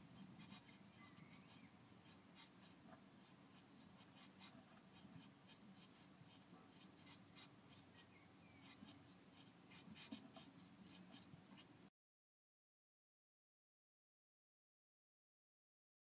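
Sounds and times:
nestlings scratching nest material: 0:00.0 - 0:11.7.

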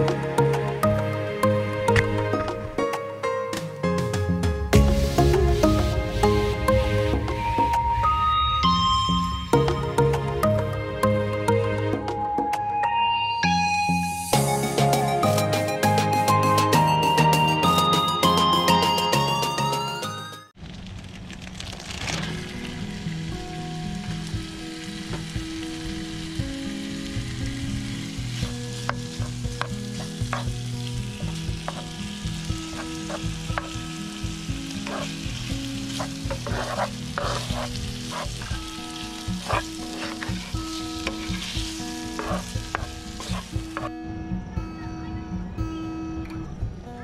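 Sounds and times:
background music: 0:00.0 - 0:20.6, 0:22.6 - 0:47.0
chicken sizzling in oil: 0:20.6 - 0:43.9
spatula scraping pan: 0:32.7 - 0:33.8, 0:34.8 - 0:43.9.

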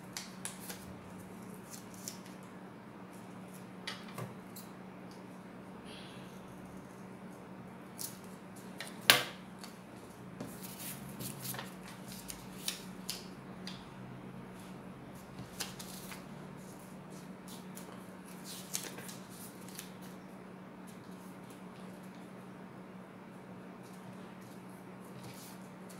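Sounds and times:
steady low hum: 0:00.0 - 0:25.9
paper crinkling: 0:00.4 - 0:02.4.

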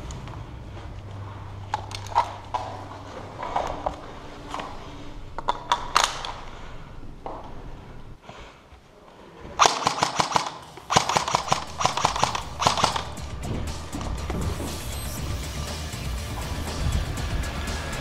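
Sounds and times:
airsoft rifle rapid bursts: 0:09.6 - 0:15.2
sharp clicks: 0:09.6 - 0:15.4.

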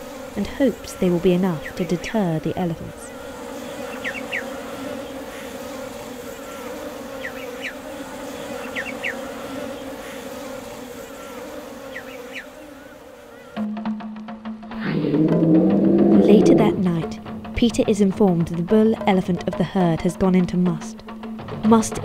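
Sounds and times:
bees buzzing: 0:00.0 - 0:13.7, 0:14.7 - 0:17.4.

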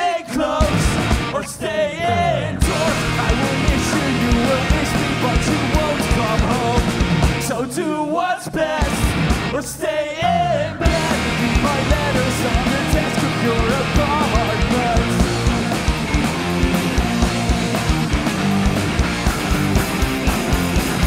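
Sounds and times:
pop-punk band playing: 0:00.0 - 0:10.0, 0:10.8 - 0:21.0
person singing: 0:00.0 - 0:15.7.

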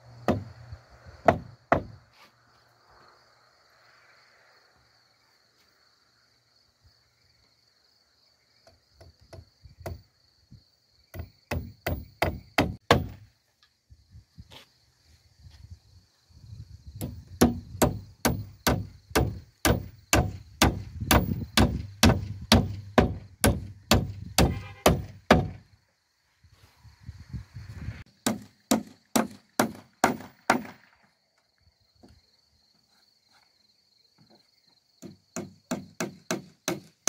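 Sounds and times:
hammer driving nails: 0:00.3 - 0:00.5, 0:01.2 - 0:01.9, 0:11.2 - 0:13.2, 0:17.0 - 0:25.6, 0:28.2 - 0:30.8, 0:35.0 - 0:36.9.

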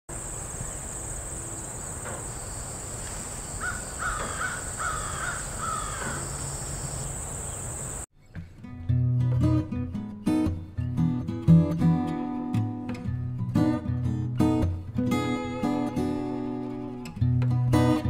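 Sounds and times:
insect drone: 0:00.1 - 0:08.1
crow cawing: 0:03.5 - 0:07.2
guitar music: 0:08.2 - 0:18.0.

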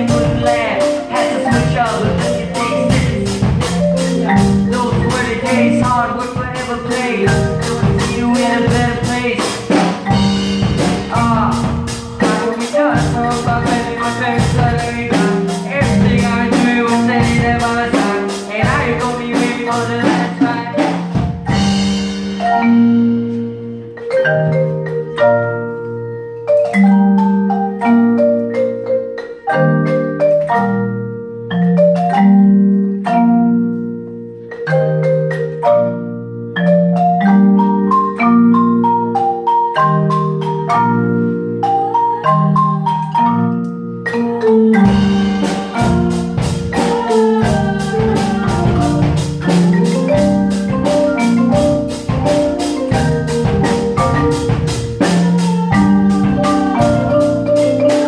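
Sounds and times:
steady ticking beat: 0:00.0 - 0:23.1, 0:37.2 - 0:58.0
marimbas and vibraphone playing: 0:00.0 - 0:58.0.

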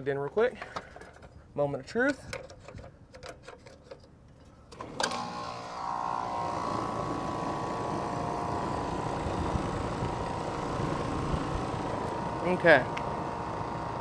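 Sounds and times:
air conditioner compressor humming: 0:04.7 - 0:14.0
steady whine: 0:04.8 - 0:14.0.

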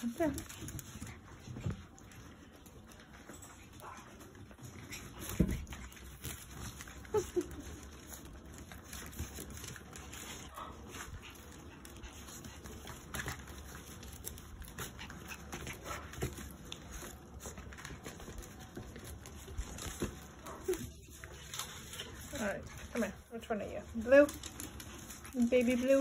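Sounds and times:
puppies scratching and scuffling: 0:00.0 - 0:26.0.

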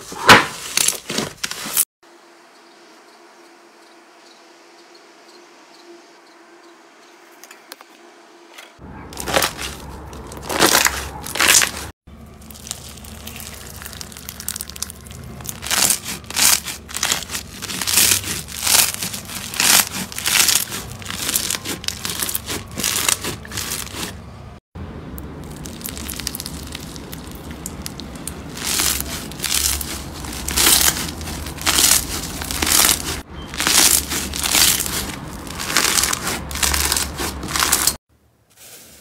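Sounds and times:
bead slime crunchy crackling: 0:09.1 - 0:24.2, 0:25.4 - 0:38.0.

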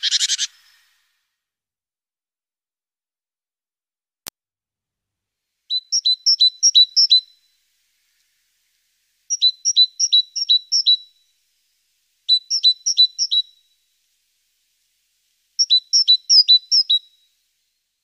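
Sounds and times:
great tit singing: 0:05.7 - 0:07.4, 0:09.3 - 0:11.1, 0:12.3 - 0:13.6, 0:15.6 - 0:17.1.

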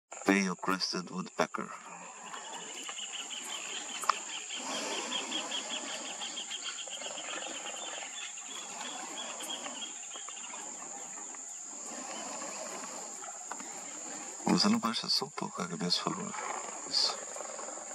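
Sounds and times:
fast pulsing insect trill: 0:00.2 - 0:17.9
insects chirring: 0:00.2 - 0:17.9.

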